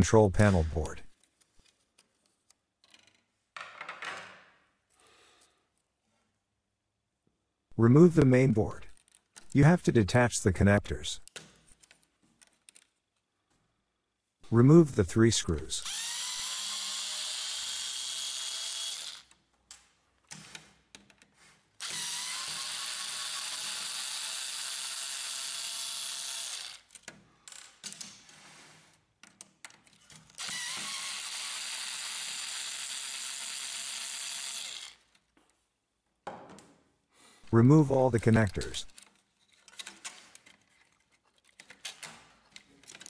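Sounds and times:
electric screwdriver running: 15.8 - 19.3, 21.8 - 26.9, 30.4 - 35.1.

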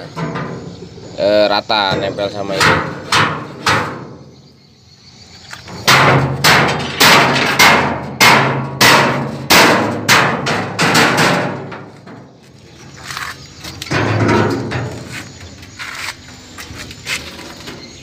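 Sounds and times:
hammer striking steel plate: 5.9 - 11.6.

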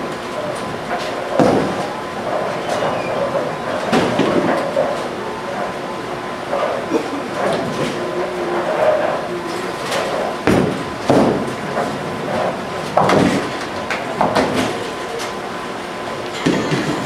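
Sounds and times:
alley machinery clatter: 0.0 - 17.0
bowling pins crashing: 1.3 - 1.9, 10.0 - 12.0
bowling ball rolling: 16.4 - 17.0.

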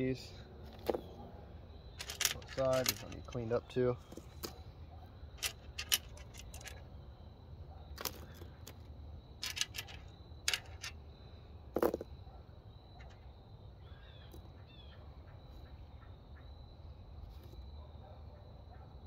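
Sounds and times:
metal bolts clicking on workbench: 2.0 - 3.5, 5.4 - 6.8, 9.4 - 11.0.

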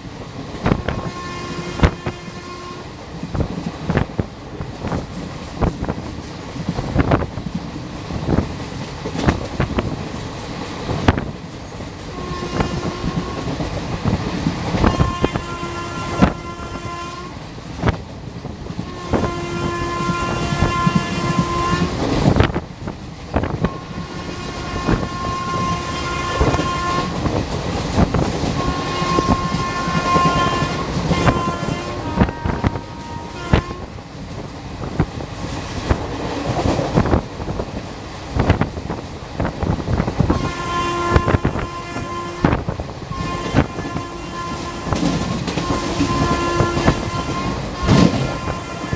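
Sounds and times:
train rushing noise: 0.0 - 48.9
train horn blasts: 0.6 - 4.0, 12.0 - 18.0, 18.7 - 22.5, 23.3 - 27.3, 27.9 - 34.0, 40.0 - 48.9.

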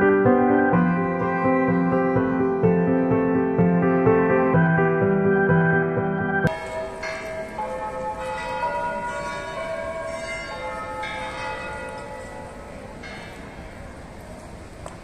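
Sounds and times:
church bells ringing: 0.0 - 14.8.

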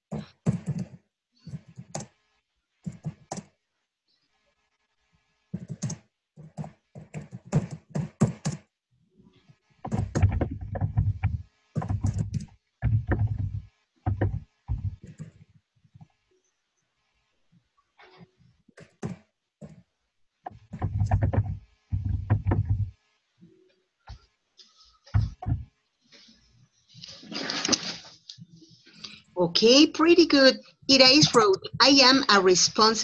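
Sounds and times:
typing on a keyboard: 2.9 - 3.5, 5.6 - 8.7, 9.9 - 15.4.

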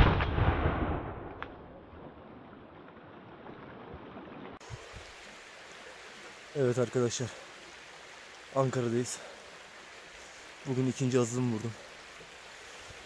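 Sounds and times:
shotgun blast echoing: 0.0 - 1.6
fast creek rushing: 2.9 - 13.0.

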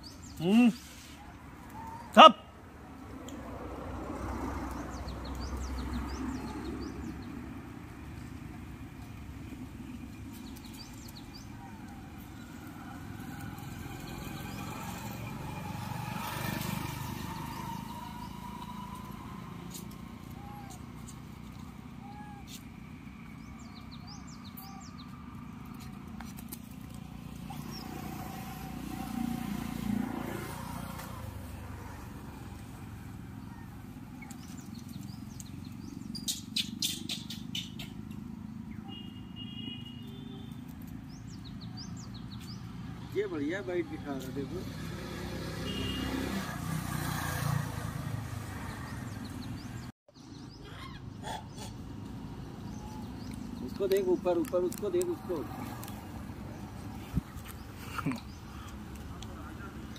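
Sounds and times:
bird chirps: 34.1 - 42.7.

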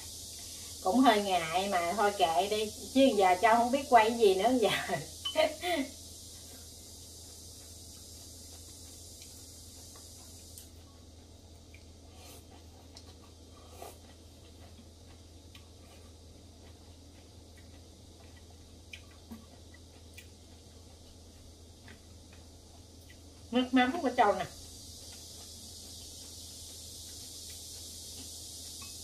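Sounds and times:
steady low hum: 0.0 - 29.0
person chewing: 6.0 - 23.5, 24.5 - 29.0.

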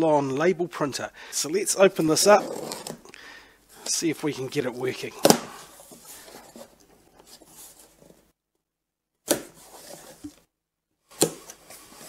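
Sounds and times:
scratchy tape rasps and rustles: 2.0 - 3.1
tape ripping: 5.2 - 5.8.

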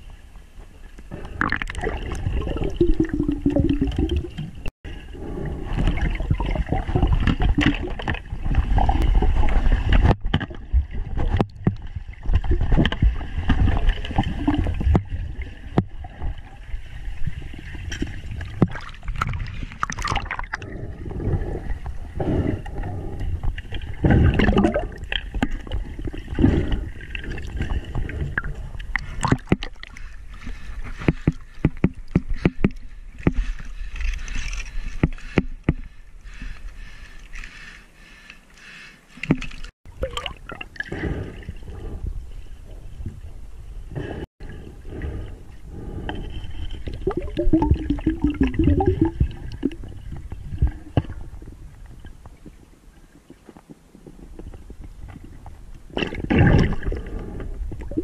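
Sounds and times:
underwater rumbling water: 0.0 - 34.3, 39.3 - 58.0
gurgling bubbles: 1.1 - 29.9, 39.9 - 42.0, 46.8 - 51.8, 55.9 - 58.0
underwater knocks and bumps: 5.7 - 16.5, 17.2 - 20.6, 23.4 - 33.5, 46.9 - 52.6.

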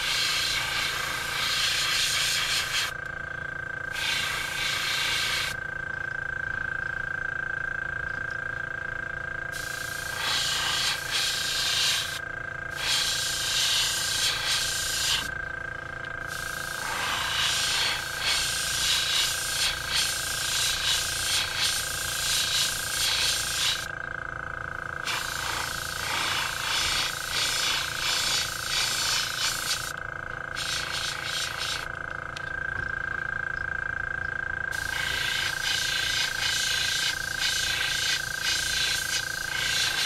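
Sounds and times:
airbrush spraying hiss: 0.0 - 3.0, 3.9 - 5.6, 9.5 - 15.3, 16.3 - 23.9, 25.0 - 31.9, 34.7 - 40.0
steady hum: 0.0 - 40.0.

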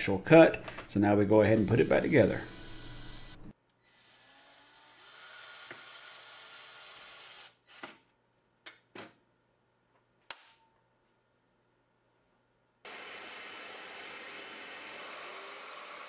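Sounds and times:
cordless drill driving screws: 1.4 - 8.0.

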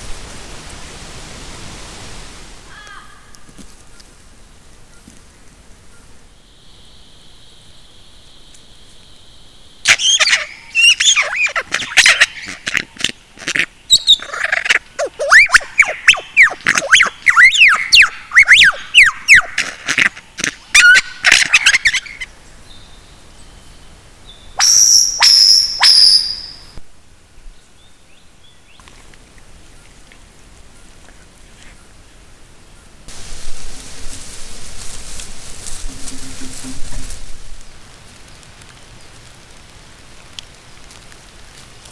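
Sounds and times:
lyrebird singing: 9.9 - 13.1, 13.8 - 19.5
high ringing bird notes: 24.6 - 26.8, 35.8 - 37.4.

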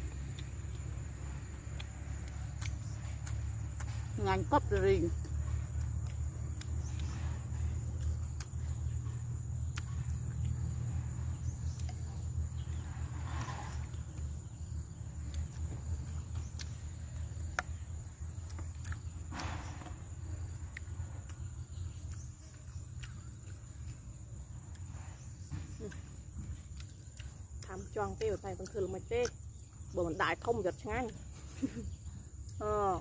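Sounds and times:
crickets trilling: 0.0 - 33.0
low steady rumble: 0.0 - 33.0.

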